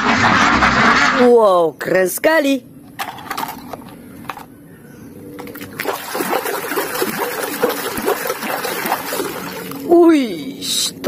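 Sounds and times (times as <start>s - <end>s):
water splashing and sloshing: 5.3s - 10.1s.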